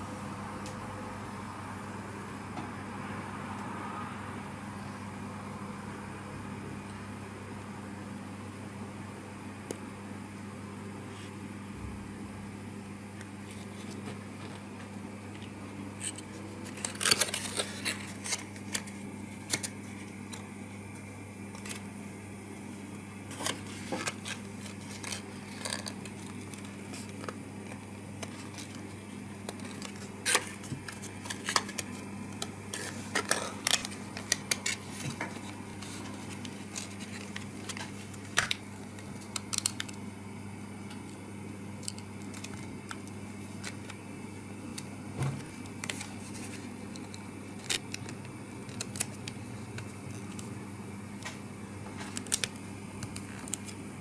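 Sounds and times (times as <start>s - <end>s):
steady low hum: 0.0s - 54.0s
card being folded: 13.2s - 22.2s, 22.8s - 40.2s, 40.8s - 44.0s, 44.7s - 50.6s, 51.2s - 53.9s.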